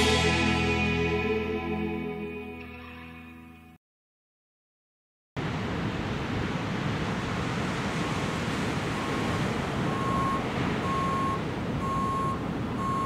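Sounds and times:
surf: 0:00.0 - 0:02.2, 0:05.4 - 0:13.0
wind: 0:05.4 - 0:13.0
truck backup alarm beeping: 0:09.0 - 0:13.0.

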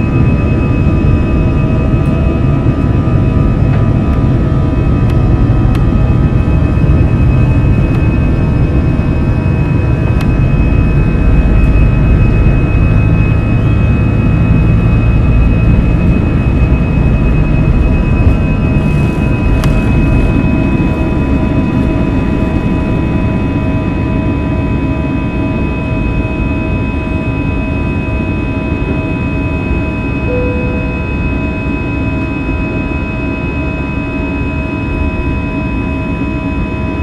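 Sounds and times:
low rumble: 0:00.0 - 0:24.0
jet engine roar in cabin: 0:00.0 - 0:37.0
whining fan tones: 0:00.0 - 0:37.0.

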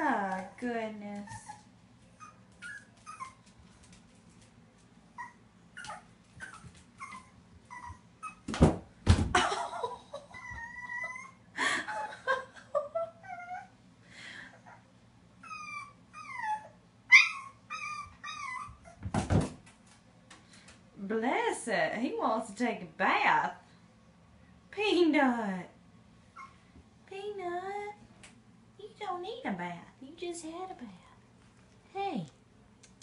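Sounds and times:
puppy whimpering: 0:01.3 - 0:03.4, 0:05.2 - 0:08.5, 0:10.1 - 0:12.1, 0:13.1 - 0:13.8, 0:15.4 - 0:19.0
thumps against a bathtub: 0:08.5 - 0:09.5, 0:19.0 - 0:19.7.

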